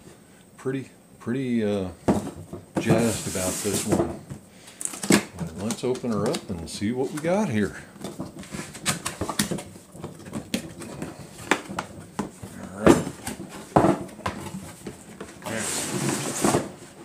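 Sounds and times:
box sliding with scraping rustle: 2.8s - 4.1s, 15.4s - 17.0s.

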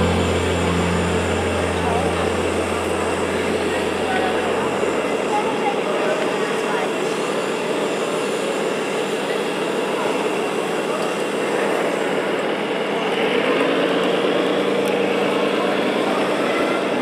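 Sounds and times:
electronic diesel engine sound: 0.0s - 6.8s
crowd chatter: 0.0s - 17.0s.

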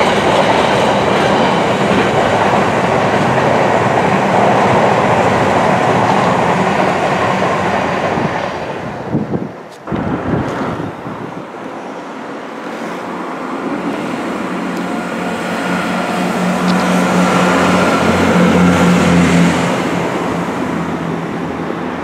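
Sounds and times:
train wheels rumbling on rails: 0.0s - 22.0s
diesel engine droning: 14.4s - 22.0s.

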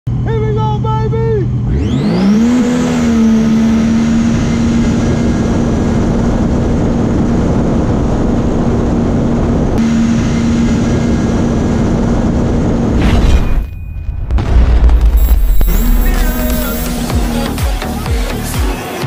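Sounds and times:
jet ski engine high revs: 1.5s - 12.9s.

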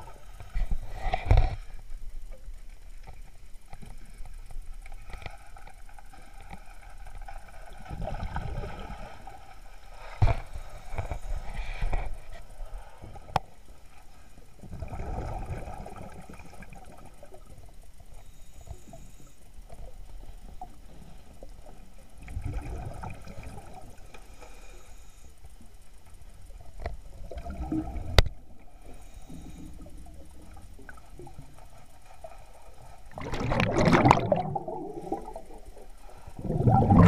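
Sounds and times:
underwater exhaled bubbles gurgling: 7.8s - 9.2s, 14.6s - 17.5s, 22.2s - 24.0s, 27.1s - 28.7s, 33.1s - 37.0s.

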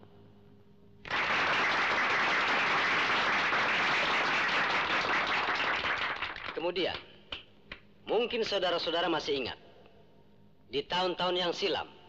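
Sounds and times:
audience applause: 1.1s - 6.6s.

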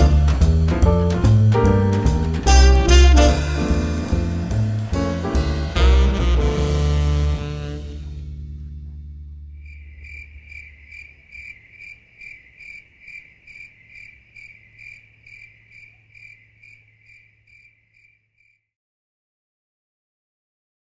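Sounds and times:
jazzy music: 0.0s - 9.5s
cricket chirping: 9.6s - 18.7s.

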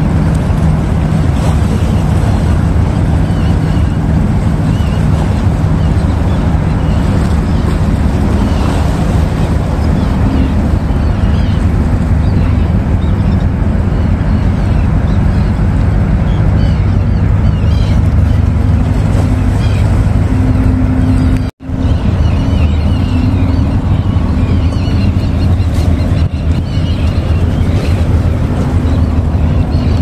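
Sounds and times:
ship engine drone: 0.0s - 30.0s.

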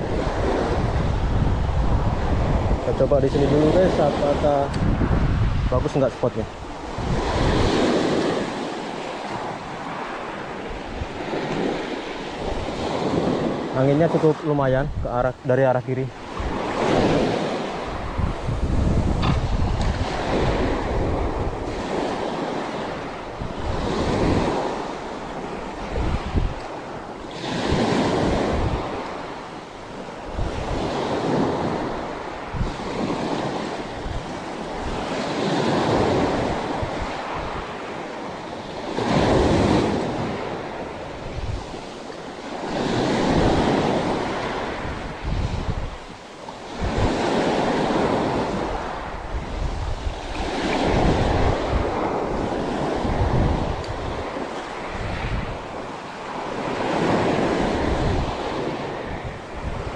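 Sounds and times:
wind buffeting microphone: 0.0s - 59.9s
waves washing up pebble beach: 15.6s - 59.9s.

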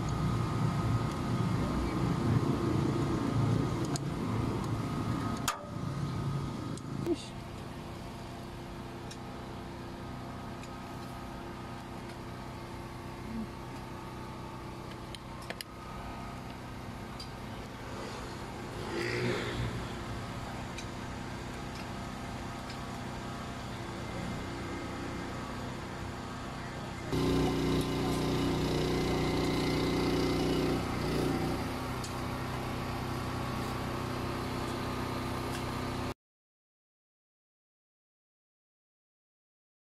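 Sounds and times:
engine idling: 19.7s - 36.1s.

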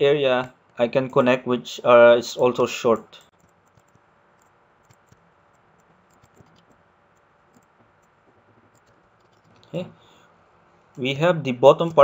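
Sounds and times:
computer mouse clicks: 3.0s - 9.8s.

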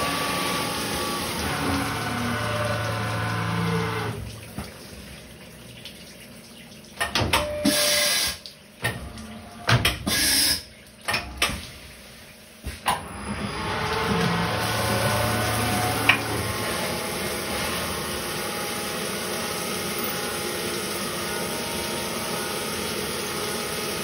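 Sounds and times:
milling machine running: 0.0s - 4.3s, 12.9s - 24.0s.

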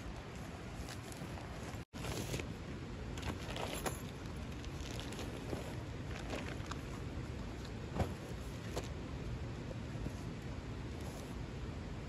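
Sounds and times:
low outdoor rumble: 0.0s - 12.0s
rustling of stuff sack and mat: 0.2s - 2.6s, 3.2s - 9.0s.

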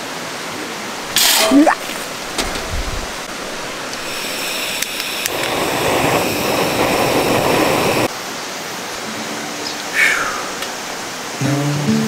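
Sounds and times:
mountain stream rushing: 0.0s - 11.9s.

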